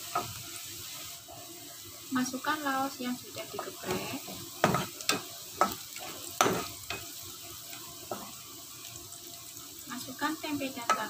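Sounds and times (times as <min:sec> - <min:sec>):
metal spatula scraping wok: 0:00.0 - 0:01.1, 0:03.5 - 0:08.4
food sizzling in hot oil: 0:00.0 - 0:11.0.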